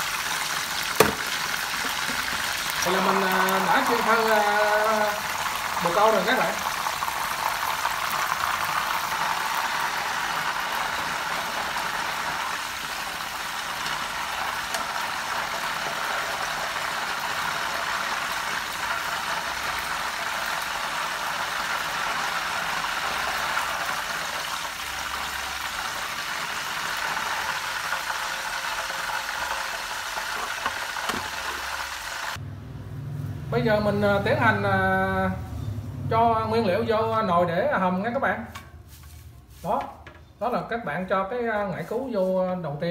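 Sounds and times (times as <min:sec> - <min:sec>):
hot oil sizzling in a wok: 0:00.0 - 0:32.4.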